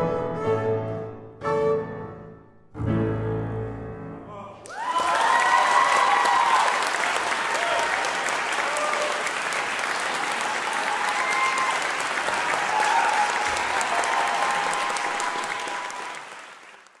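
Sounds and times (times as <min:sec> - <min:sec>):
audience applauding: 0:04.6 - 0:17.0.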